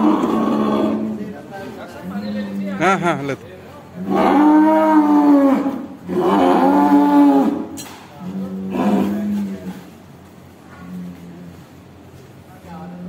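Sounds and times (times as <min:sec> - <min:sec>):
cow mooing: 0:00.0 - 0:01.2, 0:04.0 - 0:09.8.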